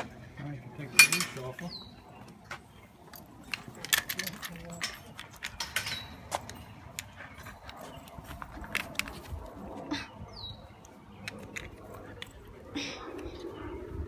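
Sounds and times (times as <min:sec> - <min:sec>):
leash clip clicks and rattles: 0:03.0 - 0:09.6, 0:10.8 - 0:12.5.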